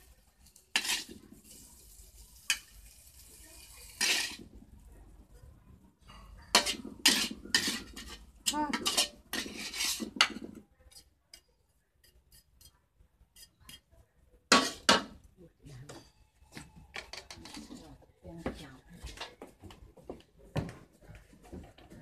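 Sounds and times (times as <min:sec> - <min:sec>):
metal ladle scraping a wok: 0:00.0 - 0:04.5, 0:06.2 - 0:11.4, 0:12.0 - 0:13.9, 0:14.5 - 0:15.2.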